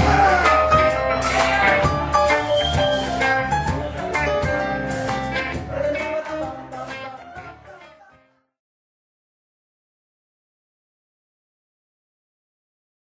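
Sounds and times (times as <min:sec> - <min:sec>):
drums: 0:00.0 - 0:07.8
rock band playing: 0:00.0 - 0:08.1
electric guitar: 0:00.0 - 0:08.4.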